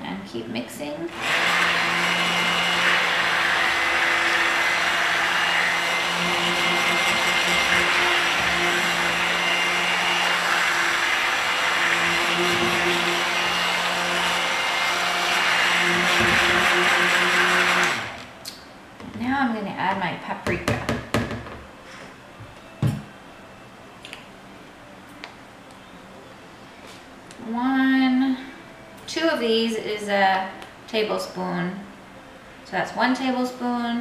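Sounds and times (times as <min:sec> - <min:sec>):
stick blender running: 0:01.1 - 0:18.3.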